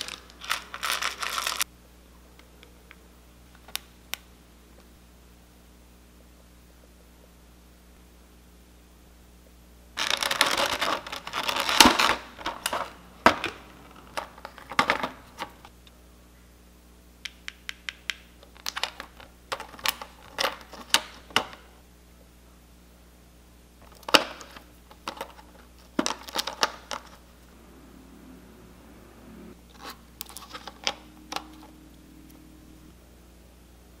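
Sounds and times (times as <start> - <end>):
plastic bag crinkling: 0.0 - 1.6, 10.0 - 13.0.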